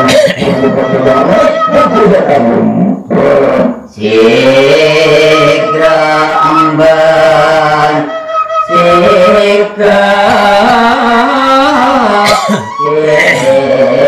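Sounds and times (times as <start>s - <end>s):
man singing into microphone: 0.0s - 14.0s
bamboo flute playing: 0.3s - 2.5s, 4.8s - 9.7s, 12.6s - 13.6s.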